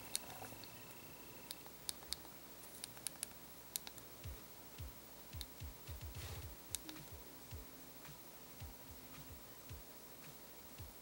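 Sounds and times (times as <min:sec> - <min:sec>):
soft low thuds: 0:04.2 - 0:07.7, 0:08.6 - 0:09.9.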